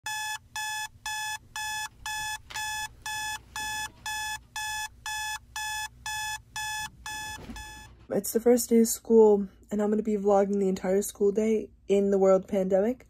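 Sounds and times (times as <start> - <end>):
electronic alarm beeps: 0.1 - 7.9.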